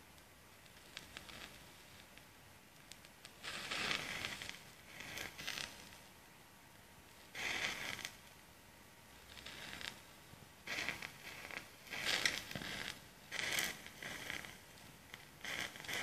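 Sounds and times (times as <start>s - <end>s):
matchsticks burning: 0.2s - 6.1s, 7.1s - 8.4s, 9.1s - 16.0s
match heads flaring with hiss: 0.6s - 2.1s, 2.9s - 6.0s, 7.3s - 8.3s, 9.2s - 10.0s, 10.6s - 16.0s.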